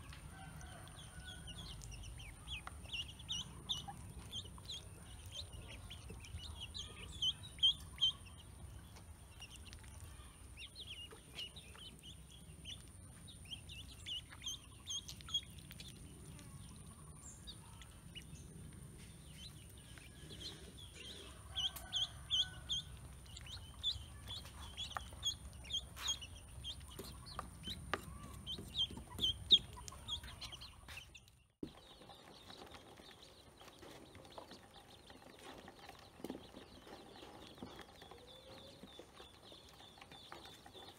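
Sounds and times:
ducklings peeping: 0.4s - 40.9s.

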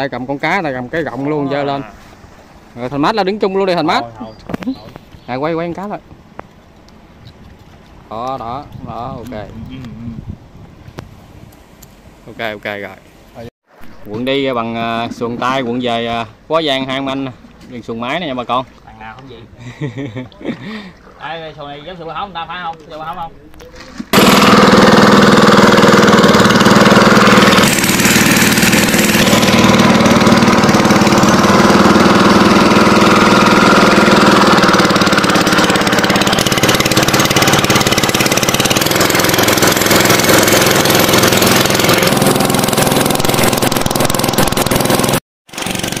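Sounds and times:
motorboat engine running: 24.0s - 46.0s.

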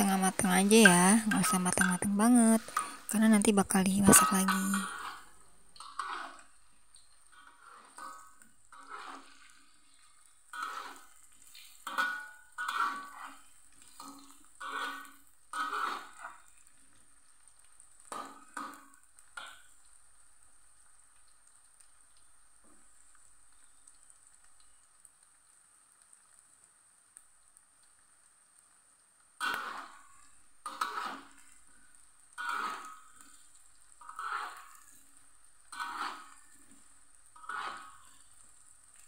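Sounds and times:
metal spatula scraping a wok: 0.0s - 17.0s, 18.0s - 19.7s, 29.4s - 31.6s, 32.3s - 39.0s
oil sizzling: 0.0s - 39.0s.

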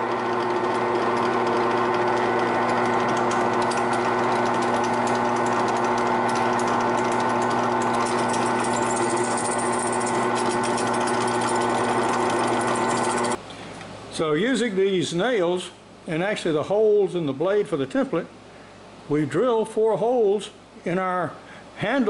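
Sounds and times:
drill bit cutting wood: 0.0s - 13.4s
drill press humming: 0.0s - 13.4s.

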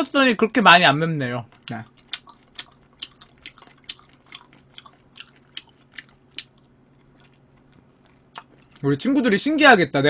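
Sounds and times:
wet chewing clicks: 1.5s - 9.0s.

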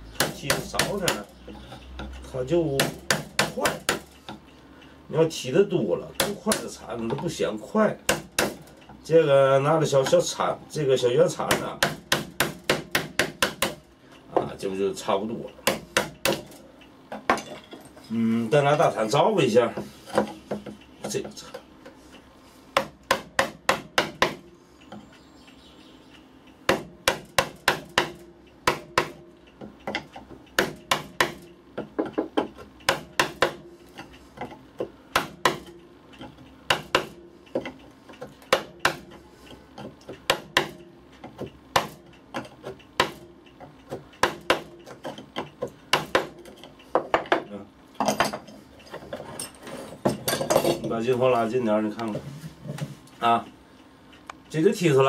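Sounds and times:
hammer striking gouge into wood: 0.2s - 1.3s, 2.8s - 4.1s, 6.2s - 6.7s, 8.1s - 8.6s, 11.4s - 13.8s, 15.6s - 16.5s, 22.8s - 24.4s, 26.7s - 29.2s, 30.6s - 31.4s, 32.0s - 33.6s, 35.1s - 35.7s, 36.7s - 37.2s, 38.5s - 39.1s, 40.3s - 40.8s, 41.7s - 42.0s, 44.2s - 44.7s, 45.9s - 46.4s.

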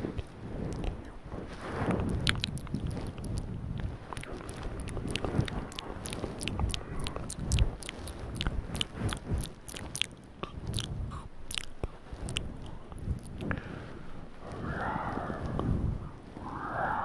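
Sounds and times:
chewing and nibbling mouth sounds: 0.0s - 1.2s, 1.9s - 13.6s
sharp wet clicks: 0.1s - 1.1s, 2.1s - 13.6s.

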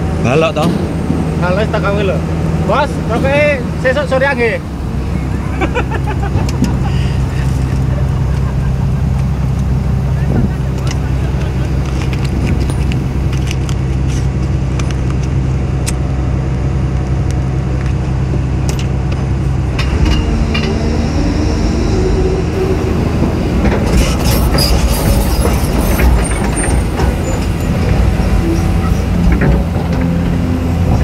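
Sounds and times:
excavator diesel engine running: 0.0s - 31.0s
whining hydraulic pump: 19.8s - 31.0s.

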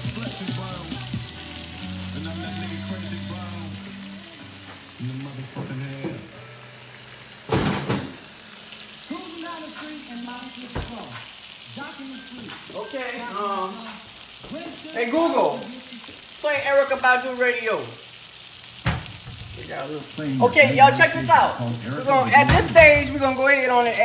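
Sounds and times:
faint music with singing: 0.0s - 6.7s
fish frying in a pan: 0.0s - 24.0s
vegetables simmering: 0.0s - 24.0s.

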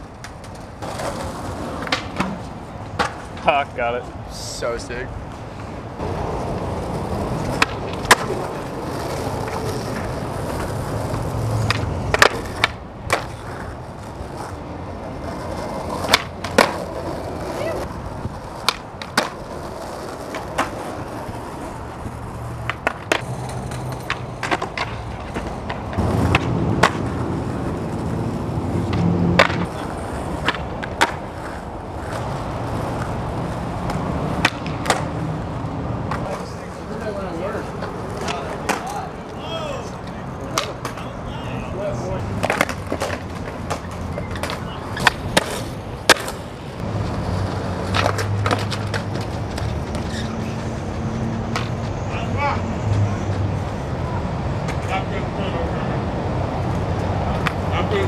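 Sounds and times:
skateboard clacks and knocks: 0.0s - 3.6s, 6.0s - 28.2s, 28.8s - 35.4s, 37.7s - 39.1s, 40.0s - 41.2s, 42.2s - 51.9s
skateboard wheels rolling on pavement: 0.0s - 58.0s.

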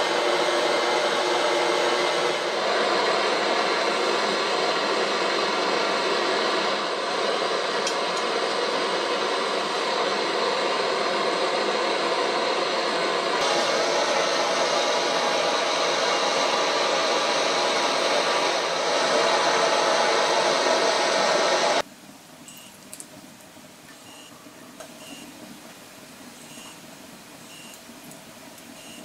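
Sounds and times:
forge rushing noise: 0.0s - 21.8s.

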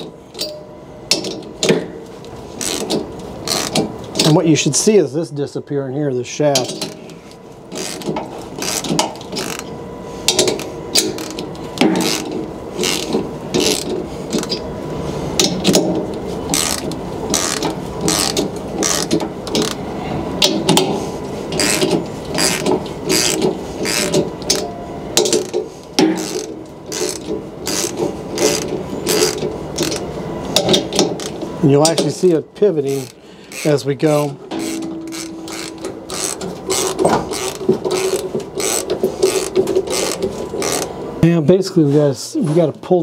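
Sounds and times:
ratchet wrench clicking: 2.6s - 3.8s, 7.8s - 9.7s, 10.4s - 11.4s, 12.0s - 14.6s, 16.5s - 19.8s, 21.6s - 24.6s, 26.2s - 30.0s, 32.9s - 33.7s, 34.5s - 40.9s.

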